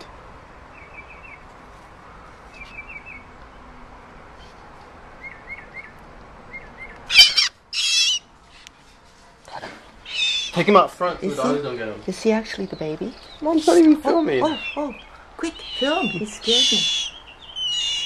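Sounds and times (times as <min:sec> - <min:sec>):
shrill bird calls: 0:05.2 - 0:08.3, 0:10.1 - 0:10.6, 0:14.4 - 0:18.0
young bird chirping: 0:06.5 - 0:08.3, 0:10.1 - 0:10.6, 0:12.7 - 0:18.0.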